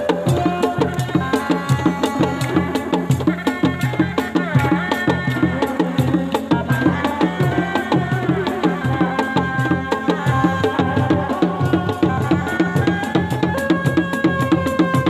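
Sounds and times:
hand drums in fast pattern: 0:00.0 - 0:15.0.

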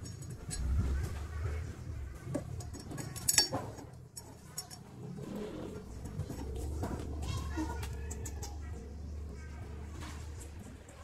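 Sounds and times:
metallic clinks and knocks: 0:00.0 - 0:01.3, 0:02.2 - 0:05.1.

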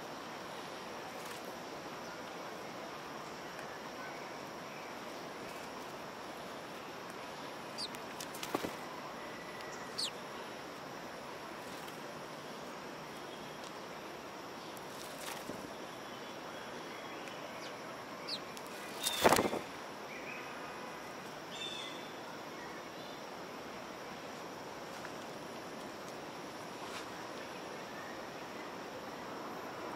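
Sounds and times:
steady background noise: 0:00.0 - 0:29.9
sparrows chirping: 0:07.7 - 0:08.7, 0:09.7 - 0:10.2, 0:16.8 - 0:19.6
loud rustle near microphone: 0:18.6 - 0:19.8.

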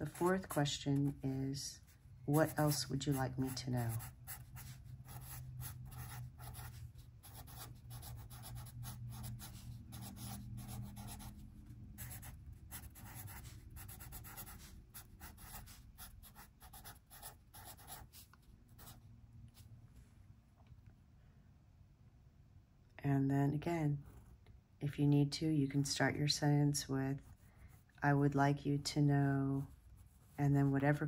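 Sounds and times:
felt-tip pen scratching on paper: 0:02.4 - 0:11.4, 0:12.0 - 0:19.0.

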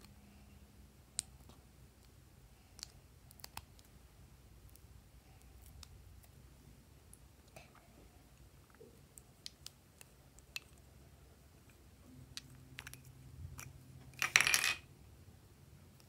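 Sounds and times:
plastic caps rattling clatter: 0:14.2 - 0:14.8.

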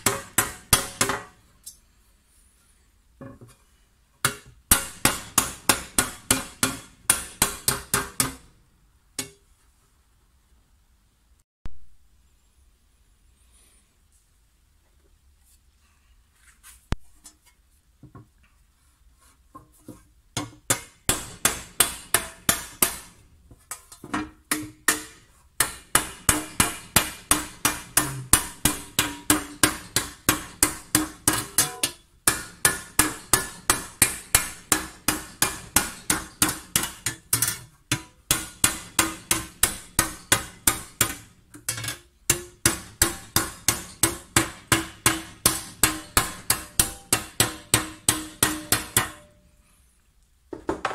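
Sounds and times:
hammer striking copper: 0:00.0 - 0:01.4, 0:04.2 - 0:08.5, 0:09.2 - 0:09.4, 0:20.4 - 0:23.2, 0:24.1 - 0:49.4.

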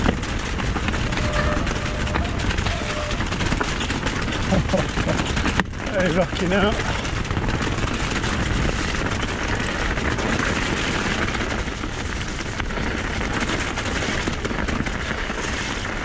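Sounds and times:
bike rattling and knocking: 0:00.0 - 0:16.0
tyres rolling on loose stones: 0:00.0 - 0:16.0
wind noise on microphone: 0:00.0 - 0:16.0.

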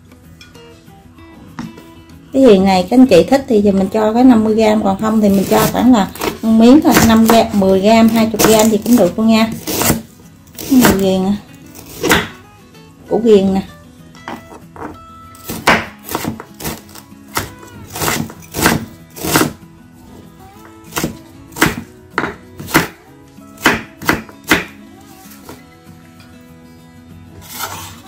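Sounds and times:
soft background music: 0:00.0 - 0:28.0
knife knocking on cutting board: 0:21.7 - 0:22.4.

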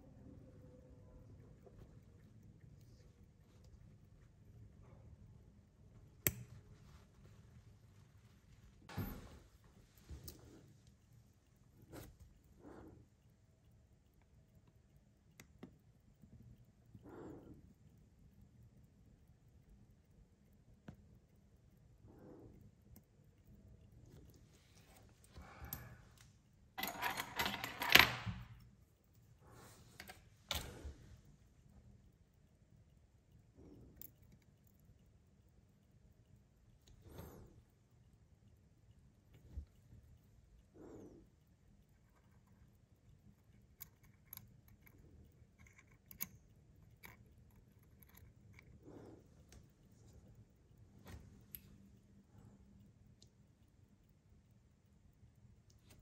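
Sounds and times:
tweezers clicking on metal parts: 0:06.2 - 0:06.6, 0:43.4 - 0:48.8.

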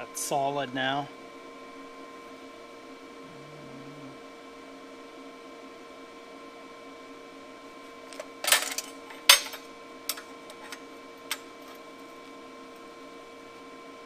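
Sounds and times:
metal pieces clattering on table: 0:08.4 - 0:10.8.

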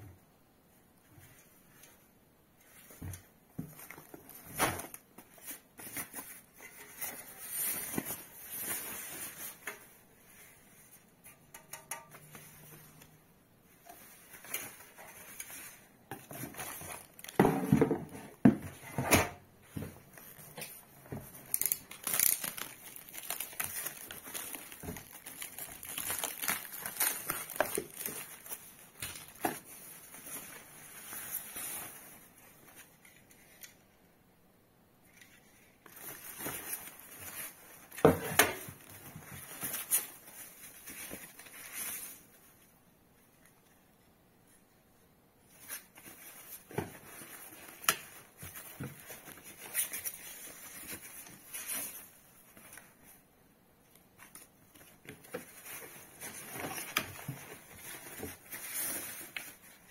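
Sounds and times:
plastic packaging crinkling: 0:14.0 - 0:17.5, 0:20.2 - 0:32.9, 0:35.5 - 0:42.3.

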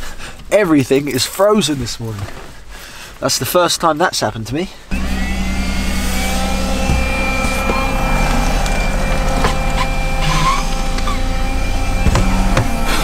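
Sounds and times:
car engine idling: 0:04.6 - 0:13.0
handheld vacuum whirring: 0:04.9 - 0:13.0
vacuum slurps: 0:04.9 - 0:13.0.

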